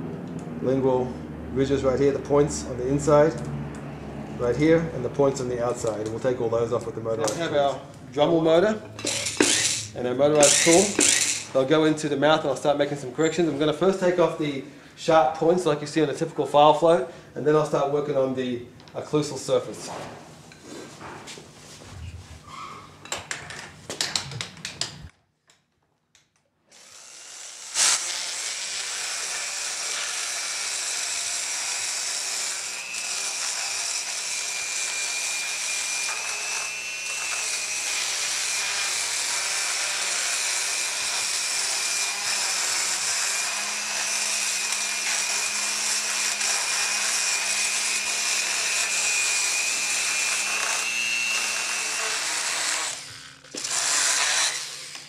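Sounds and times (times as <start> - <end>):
dental grinder whining and grinding: 9.0 - 11.6, 26.7 - 55.0.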